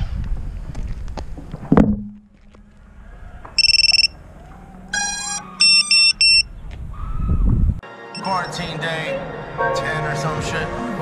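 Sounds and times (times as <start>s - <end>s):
electronic beeps: 3.6s - 4.2s, 5.0s - 6.5s, 8.2s - 8.4s
tone stepping in pitch: 5.0s - 6.4s.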